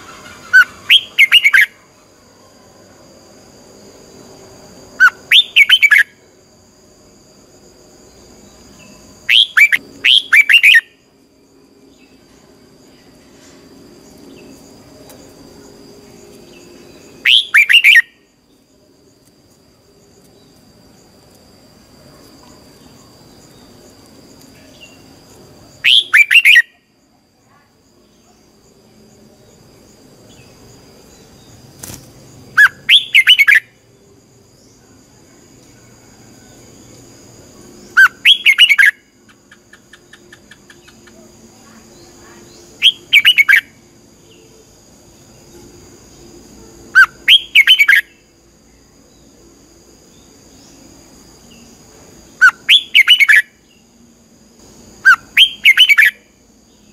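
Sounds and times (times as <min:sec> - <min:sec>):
bird singing warbled phrases: 0:00.0 - 0:01.8, 0:05.0 - 0:06.2, 0:08.7 - 0:11.0, 0:17.0 - 0:18.2, 0:25.8 - 0:26.8, 0:32.6 - 0:33.8, 0:37.9 - 0:44.5, 0:47.0 - 0:48.2, 0:52.3 - 0:53.8, 0:55.0 - 0:56.9
faint high-pitched whine: 0:00.0 - 0:56.9.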